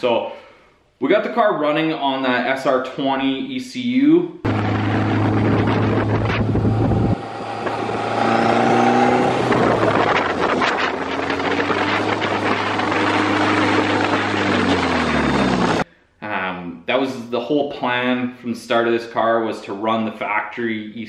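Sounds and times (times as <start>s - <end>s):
car engine accelerating: 4.5s - 15.8s
wind on microphone: 4.5s - 15.8s.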